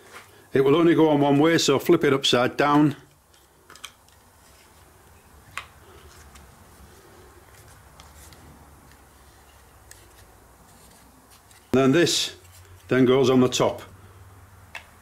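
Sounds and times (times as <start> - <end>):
plastic parts clicking and handling: 3.1 - 6.4.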